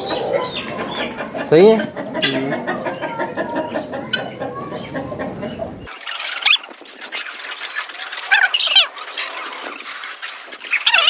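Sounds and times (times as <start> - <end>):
chickens clucking: 0.0 - 11.0
high-pitched bird squawks: 6.0 - 6.6, 7.6 - 8.9.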